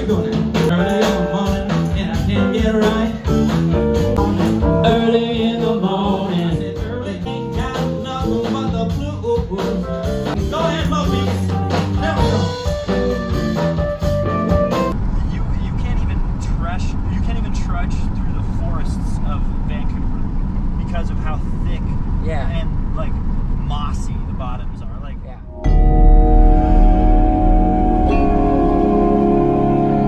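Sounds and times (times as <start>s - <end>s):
person singing: 0.0s - 12.6s
blues-rock band playing: 0.0s - 15.0s, 25.6s - 30.0s.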